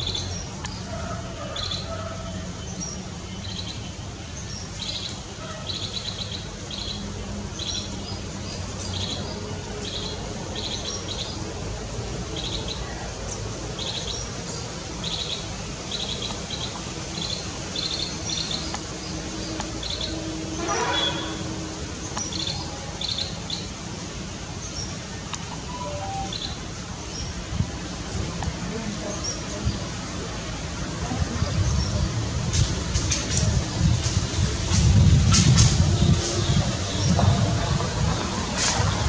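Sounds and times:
bird trilled chirps: 25.5 - 26.6.

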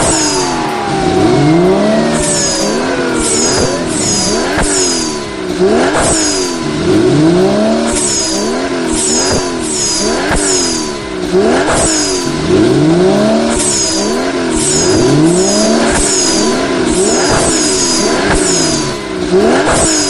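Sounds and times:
vehicle engine revving: 0.0 - 20.0.

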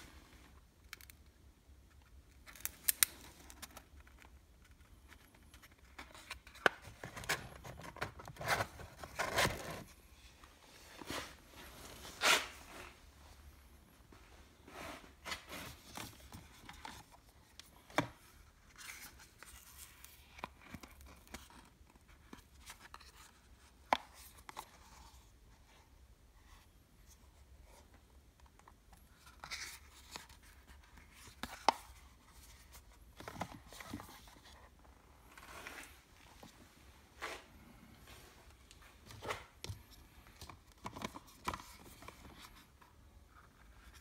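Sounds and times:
cardboard boxes rustling: 5.8 - 10.0.

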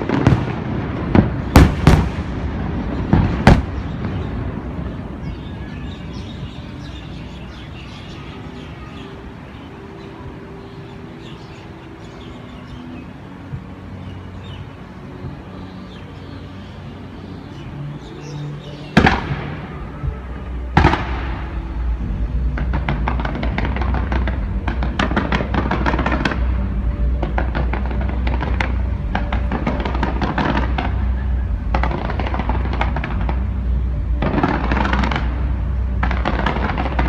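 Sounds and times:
loud firework bangs: 0.0 - 5.0, 19.0 - 20.1, 20.7 - 21.7, 22.5 - 26.5, 27.2 - 33.5, 34.2 - 35.4, 36.0 - 37.0
firework crackles: 0.0 - 6.9, 18.8 - 37.0
faint music: 0.0 - 37.0.

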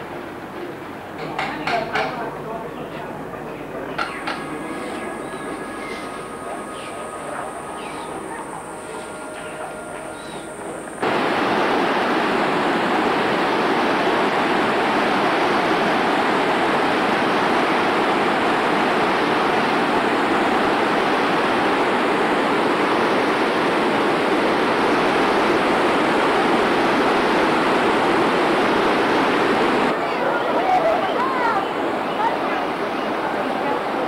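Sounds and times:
water rushing over boulders: 11.0 - 29.9.

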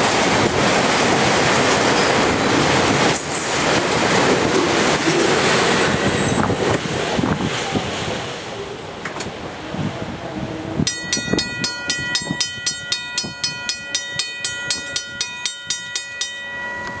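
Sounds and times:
freight train rolling: 0.0 - 17.0
railroad crossing bell ringing: 1.5 - 6.9, 10.8 - 17.0.

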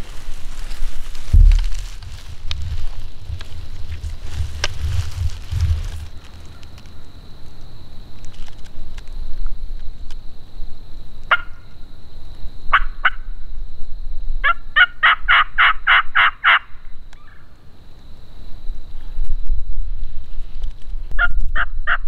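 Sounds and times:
turkey yelping: 14.4 - 16.6.

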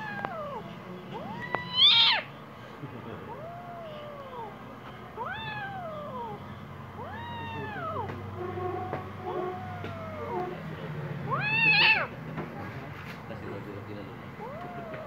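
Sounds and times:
kitten meowing angrily: 0.0 - 0.6, 1.2 - 2.3, 3.3 - 4.5, 5.2 - 6.4, 7.0 - 8.2, 9.3 - 10.6, 11.3 - 12.1, 14.4 - 15.0.

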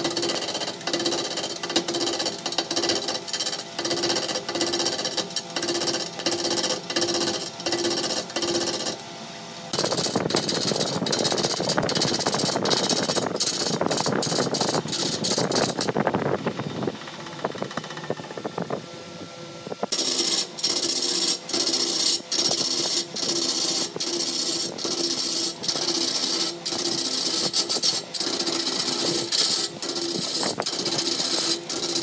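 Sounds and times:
wood lathe tool cutting: 0.0 - 9.0, 19.9 - 32.0.

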